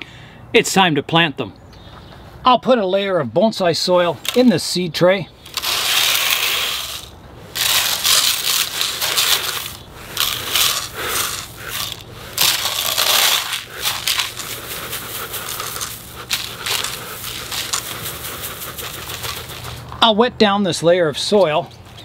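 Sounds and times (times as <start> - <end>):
soil grains pouring into plastic tray: 5.5 - 19.5.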